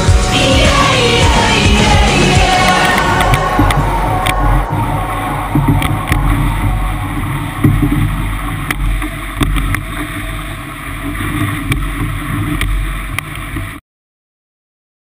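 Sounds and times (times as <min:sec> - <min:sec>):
water and spray washing: 0:00.0 - 0:13.8
wind rumble on microphone: 0:00.9 - 0:13.8
sharp ticks: 0:02.4 - 0:04.8.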